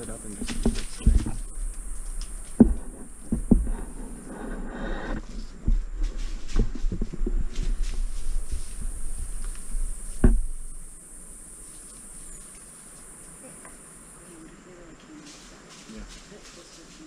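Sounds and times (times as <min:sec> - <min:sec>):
high insect buzz: 0:00.0 - 0:17.0
thump: 0:10.1 - 0:10.7.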